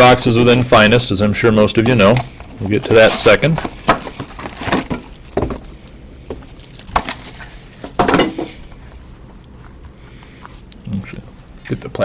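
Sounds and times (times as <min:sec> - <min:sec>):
cardboard box thumping on desk: 0:03.8 - 0:05.6.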